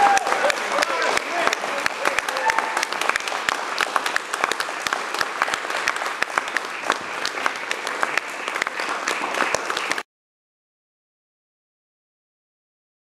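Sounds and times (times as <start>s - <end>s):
audience applause: 0.0s - 10.1s.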